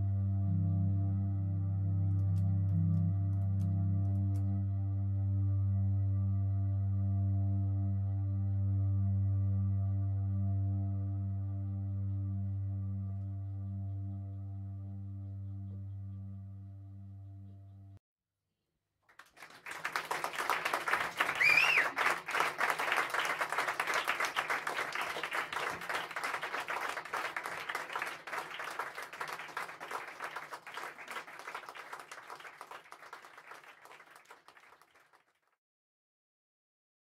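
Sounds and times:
audience applauding: 0:19.1 - 0:35.4
short whistle: 0:21.4 - 0:22.0.

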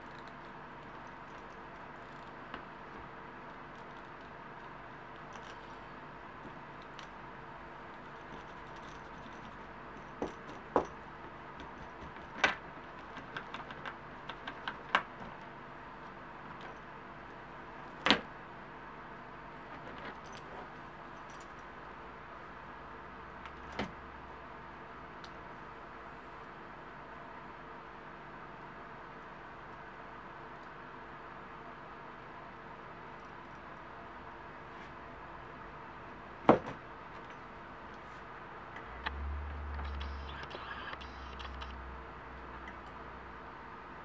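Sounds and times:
faint steady hum: 0:00.0 - 0:44.0
sharp clicks: 0:39.0 - 0:41.8.

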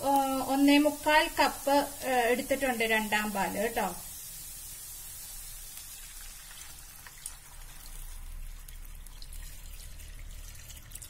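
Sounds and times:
liquid sizzling and crackling: 0:00.0 - 0:11.0
liquid pouring into hot pan: 0:04.0 - 0:11.0.

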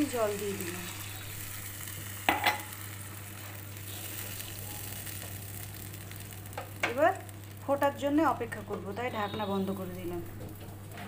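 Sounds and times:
pan hissing on gas stove: 0:00.0 - 0:08.5.

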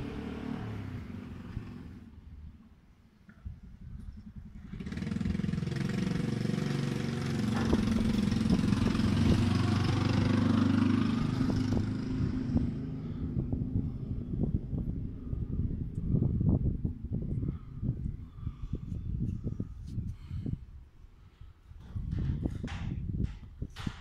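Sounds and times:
vehicle engine passing by: 0:00.0 - 0:02.2, 0:04.3 - 0:18.7.

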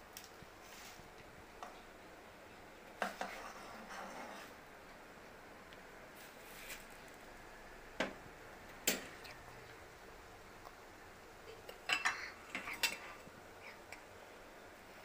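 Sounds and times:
metal utensils clinking: 0:11.7 - 0:13.2.

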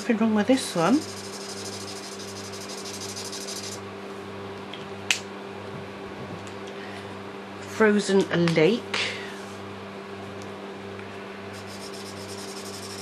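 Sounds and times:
fan humming: 0:00.0 - 0:13.0
marker scribbling on paper: 0:11.6 - 0:13.0.

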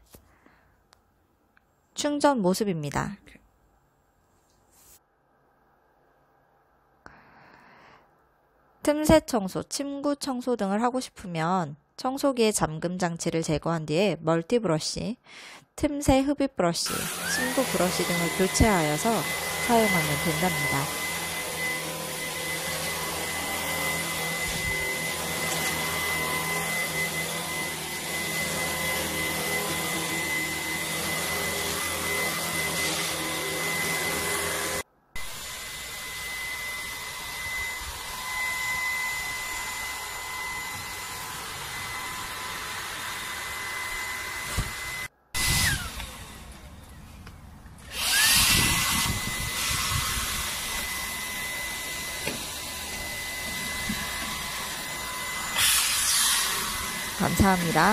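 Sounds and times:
vacuum motor whine: 0:16.9 - 0:57.9.

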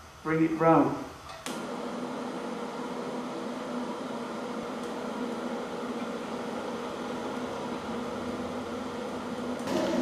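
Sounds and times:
steady hum: 0:00.0 - 0:10.0.

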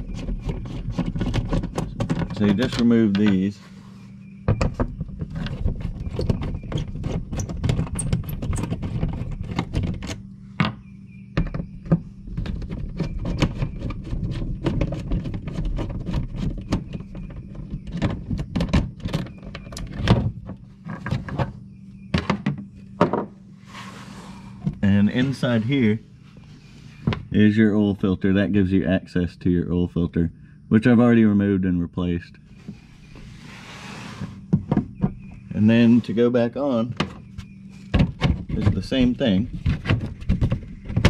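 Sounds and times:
low steady hum: 0:00.0 - 0:41.0.

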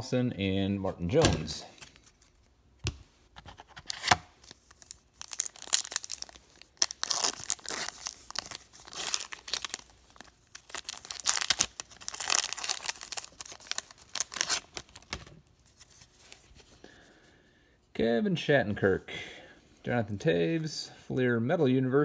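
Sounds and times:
foil wrapper tearing and crinkling: 0:03.8 - 0:16.0.

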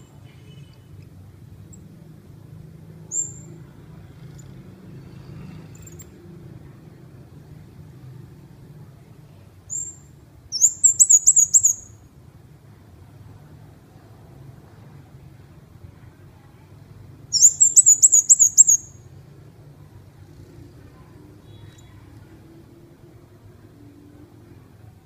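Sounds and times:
bird chirping: 0:03.1 - 0:03.6, 0:09.7 - 0:12.0, 0:17.3 - 0:19.1.

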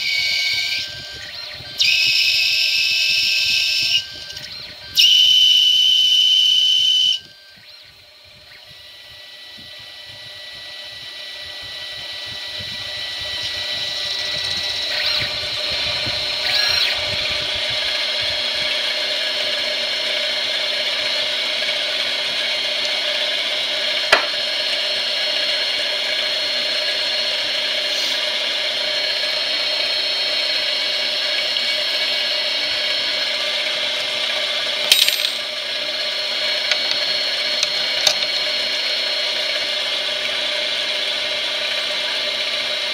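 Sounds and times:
lathe motor whining: 0:00.0 - 0:42.9
sharp click: 0:34.9 - 0:35.5.

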